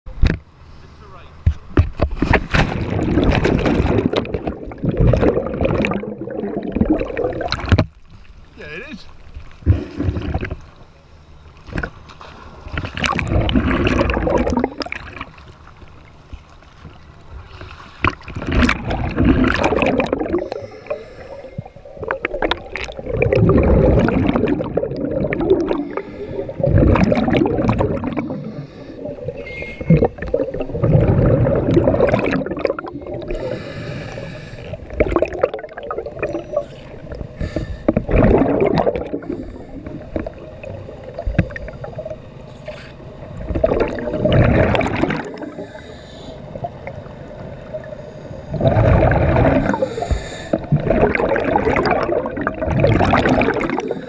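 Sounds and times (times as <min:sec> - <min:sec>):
bubbles gurgling: 0:02.6 - 0:08.0, 0:09.6 - 0:10.8, 0:12.6 - 0:16.0, 0:17.5 - 0:42.4, 0:43.2 - 0:45.9, 0:48.5 - 0:54.0
diver breathing through regulator: 0:20.2 - 0:21.8, 0:25.5 - 0:27.0, 0:28.2 - 0:31.7, 0:32.6 - 0:35.0, 0:36.4 - 0:40.2, 0:42.5 - 0:43.1, 0:45.3 - 0:46.6, 0:47.9 - 0:50.8, 0:53.7 - 0:54.0.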